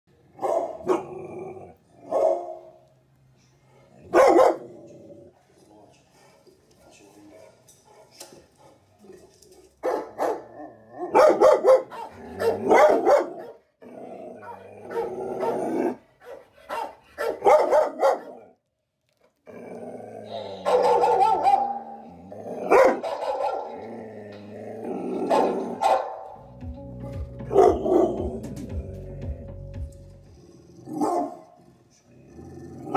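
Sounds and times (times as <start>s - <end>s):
dog barking: 0.4s - 1.1s, 2.0s - 2.8s, 4.0s - 4.7s, 7.3s - 8.3s, 9.8s - 13.7s, 14.4s - 18.5s, 20.5s - 22.0s, 22.6s - 23.8s, 25.3s - 26.4s, 27.5s - 28.2s, 31.0s - 31.5s
television music: 26.0s - 30.3s.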